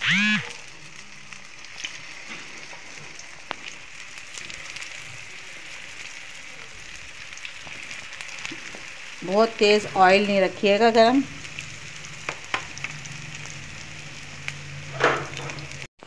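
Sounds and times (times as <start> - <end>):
food sizzling in hot oil: 0.0 - 15.9
oil popping: 11.4 - 13.7, 14.3 - 15.9.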